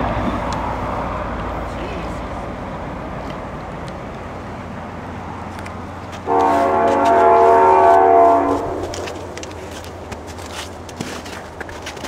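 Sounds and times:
diesel locomotive rumble: 0:00.0 - 0:12.0
train horn chord: 0:06.2 - 0:09.2.

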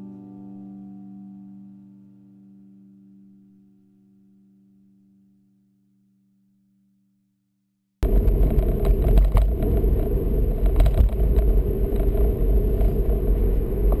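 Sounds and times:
car road rumble: 0:08.0 - 0:14.0.

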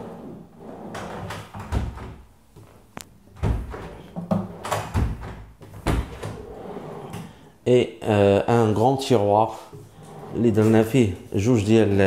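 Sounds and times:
drawers knocking and thudding shut: 0:00.9 - 0:02.2, 0:03.3 - 0:07.4.

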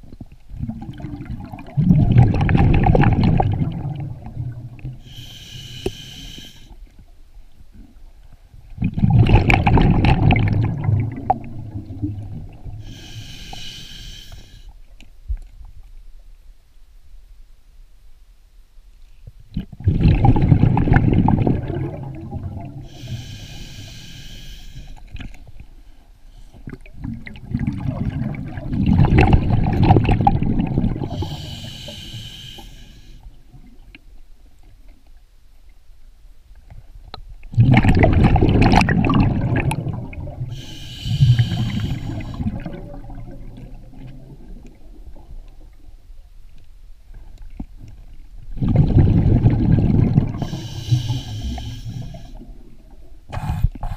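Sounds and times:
exhaled bubbles rushing: 0:00.5 - 0:05.0, 0:08.8 - 0:12.8, 0:19.7 - 0:22.9, 0:26.8 - 0:31.5, 0:37.5 - 0:45.5, 0:48.5 - 0:51.5
regulator inhale hiss: 0:05.0 - 0:06.8, 0:12.8 - 0:14.8, 0:22.8 - 0:25.1, 0:31.1 - 0:33.4, 0:40.5 - 0:42.6, 0:50.4 - 0:52.5.

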